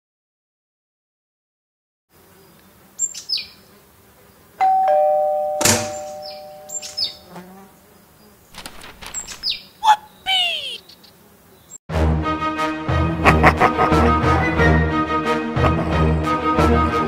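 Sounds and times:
two-note doorbell chime: 4.6 - 6.9
bird chirps: 5.7 - 7.4, 9.0 - 11.8.

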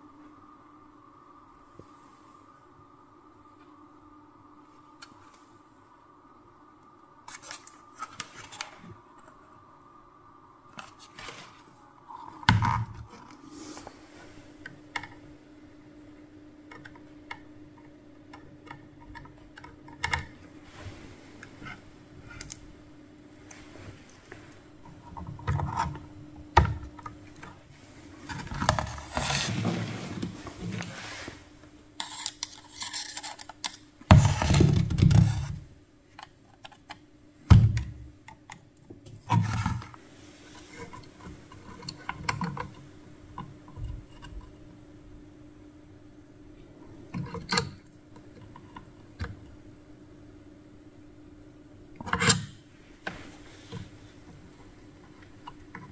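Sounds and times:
metal plate handling clicks and scrapes: 32.0 - 33.9.

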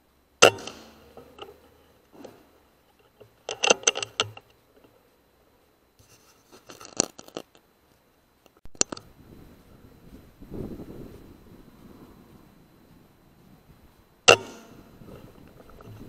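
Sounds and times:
sharp clicks and knocks: 0.4 - 5.0, 14.3 - 16.0.

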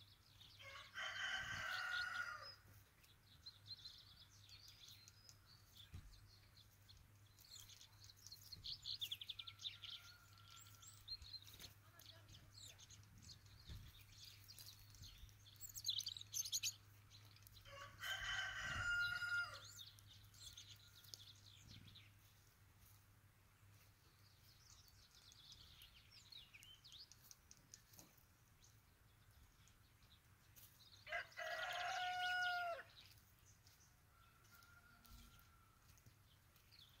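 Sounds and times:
small birds chirping: 0.0 - 37.0
rooster crowing: 0.6 - 2.6, 17.7 - 19.7, 31.1 - 32.9.

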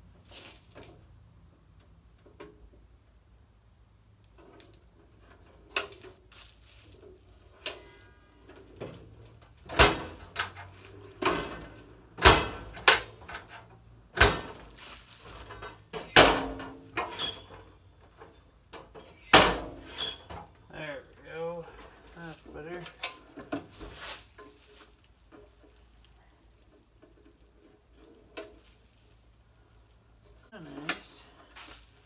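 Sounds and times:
metal drawers sliding and slamming: 8.6 - 17.6, 19.0 - 20.5.

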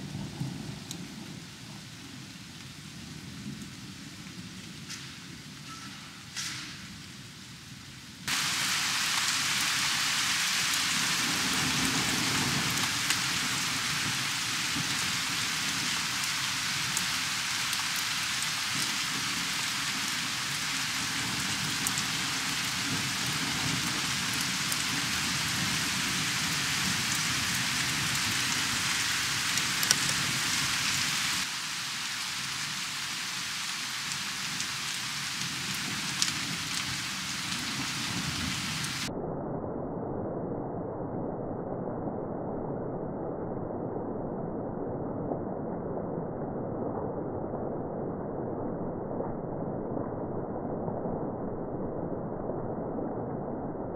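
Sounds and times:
heavy rain hissing: 0.0 - 39.1.

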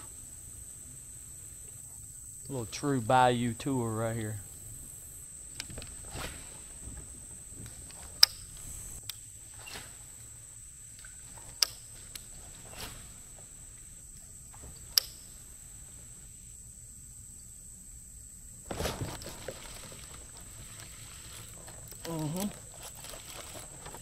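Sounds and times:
insects droning: 0.0 - 24.0
sharp clicks: 7.6 - 9.3.

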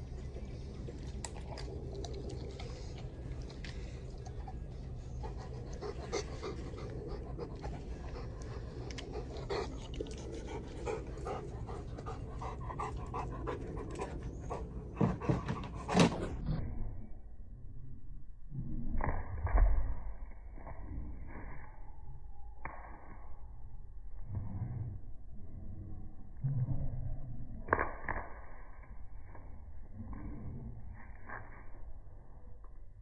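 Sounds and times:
low background hum: 0.0 - 18.9
dog panting: 2.0 - 16.2.

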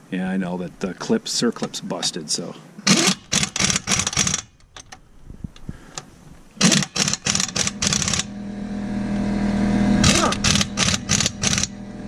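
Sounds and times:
impact wrench hammering: 6.6 - 8.3, 10.0 - 11.7
steady low hum: 7.3 - 12.0.

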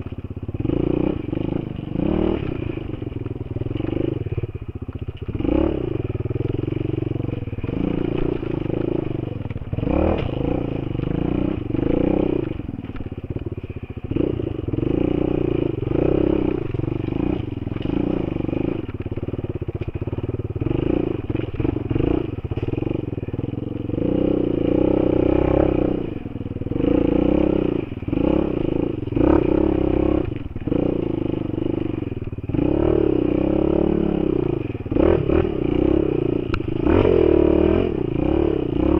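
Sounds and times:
dirt bike engine revving: 0.0 - 38.9.

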